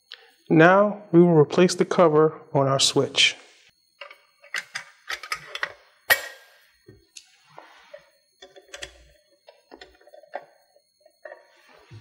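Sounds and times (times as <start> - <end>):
metal cover clicking and scraping: 4.0 - 6.5.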